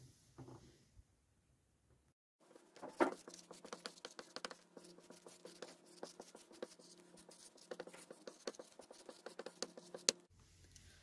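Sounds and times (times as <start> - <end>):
marker writing on whiteboard: 2.4 - 10.3.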